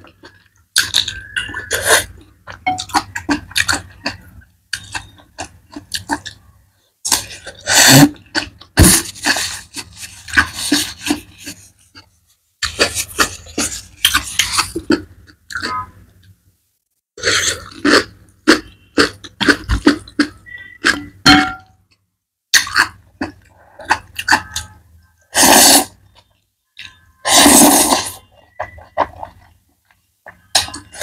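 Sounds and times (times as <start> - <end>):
loud noodle slurps: 25.3 - 26.0, 27.2 - 28.2.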